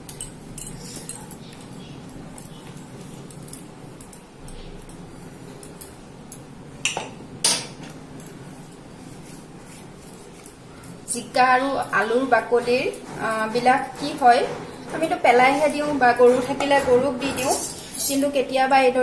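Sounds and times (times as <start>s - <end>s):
sharp metal clinks: 0.1s - 6.5s.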